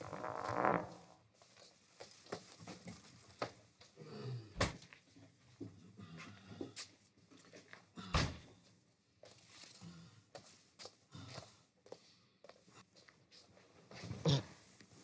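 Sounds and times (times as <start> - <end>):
soft footsteps: 0.0 - 3.9.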